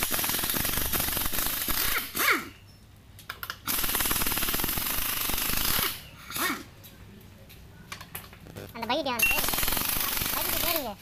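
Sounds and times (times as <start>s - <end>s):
pneumatic impact wrench hammering: 0.0s - 2.6s.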